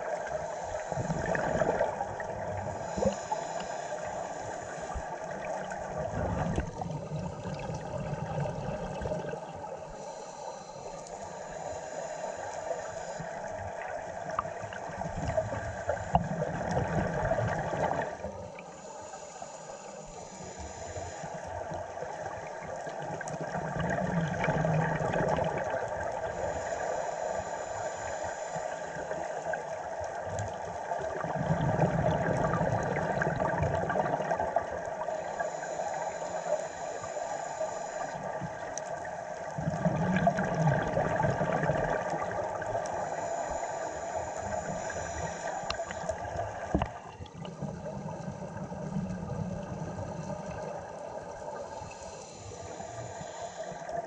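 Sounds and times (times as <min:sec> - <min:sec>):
diver breathing through regulator: 0:00.0 - 0:05.2, 0:09.8 - 0:13.4, 0:15.2 - 0:21.5, 0:26.2 - 0:29.4, 0:39.1 - 0:49.3, 0:51.6 - 0:54.0
exhaled bubbles: 0:00.0 - 0:09.8, 0:13.2 - 0:18.4, 0:21.6 - 0:26.4, 0:29.0 - 0:35.2, 0:39.4 - 0:51.8.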